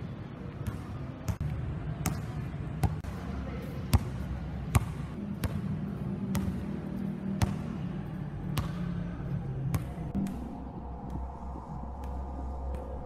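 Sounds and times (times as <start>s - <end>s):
basketball bouncing on concrete: 3.9s - 7.8s.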